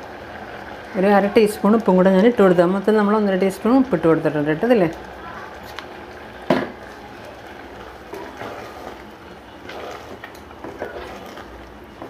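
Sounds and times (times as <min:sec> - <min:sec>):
wooden spatula scraping pot: 0:07.4 - 0:12.0.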